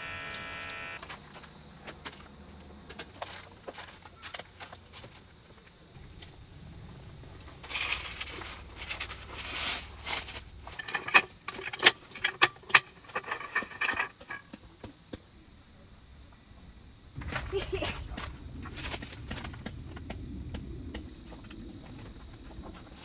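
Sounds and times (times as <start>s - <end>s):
rustling: 6.1s - 14.5s.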